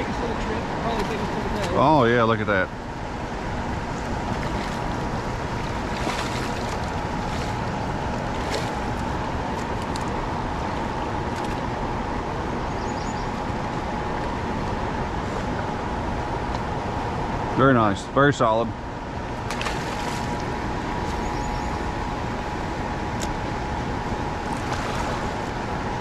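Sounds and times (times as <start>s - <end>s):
river water rushing: 3.2s - 11.4s, 24.3s - 25.9s
fish splashing at the surface: 4.3s - 10.0s, 19.4s - 20.5s.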